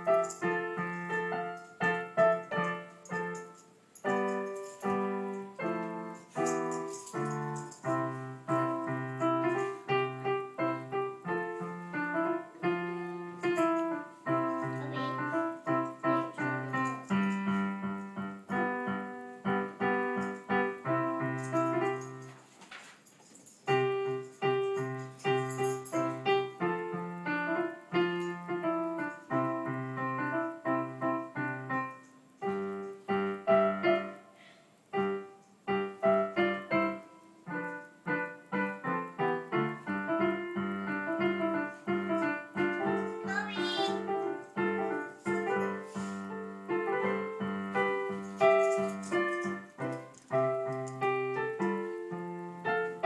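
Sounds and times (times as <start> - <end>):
electronic keyboard piano playing: 0.0 - 22.2, 35.0 - 53.0.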